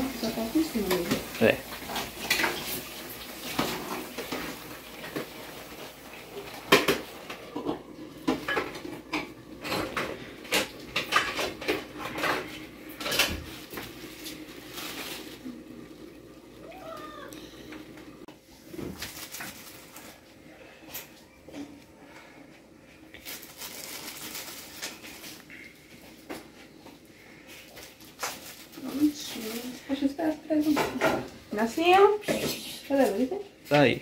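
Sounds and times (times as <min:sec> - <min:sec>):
metal utensils and dishes clinking: 0:06.7 - 0:13.4.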